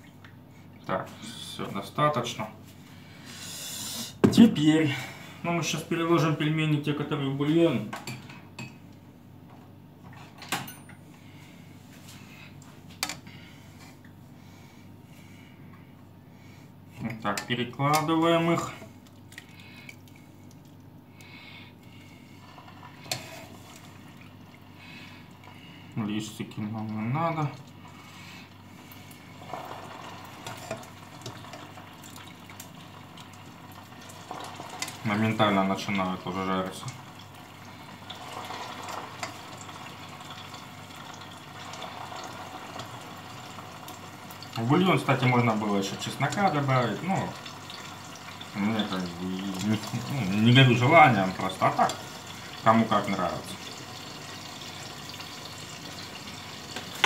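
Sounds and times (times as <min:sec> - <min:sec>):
dumplings sizzling in oil: 0:22.2 - 0:25.4, 0:28.6 - 0:36.0, 0:37.0 - 0:57.0.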